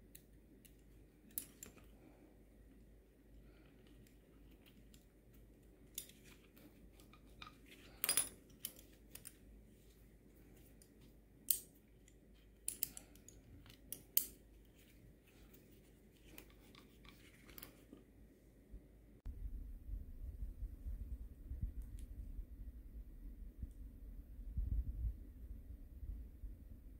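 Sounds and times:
metal snap hooks clicking: 0:11.5 - 0:14.4.

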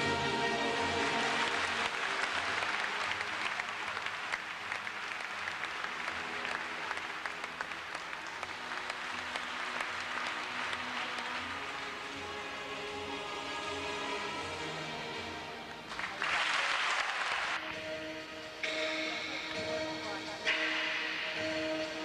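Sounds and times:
audience applauding: 0:00.0 - 0:13.9, 0:15.7 - 0:17.7
faint music: 0:00.0 - 0:22.0.

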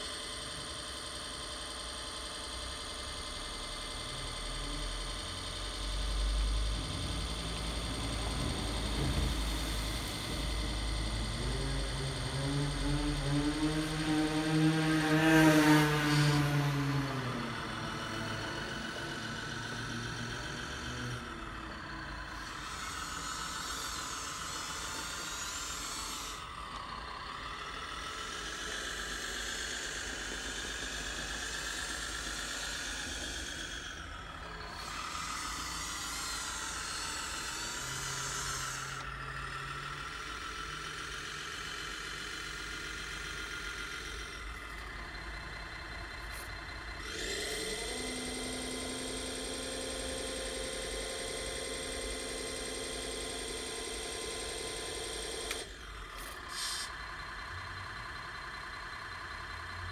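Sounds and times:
diesel engine sound: 0:00.0 - 0:59.9
hydraulic pump whining and hissing: 0:00.0 - 0:59.9.

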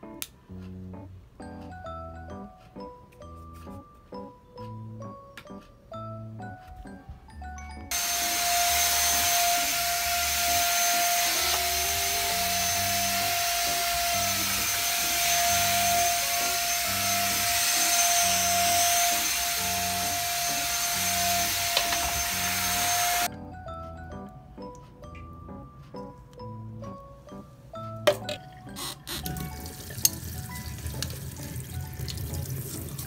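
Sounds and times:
stick vacuum cleaner running: 0:07.9 - 0:23.3.

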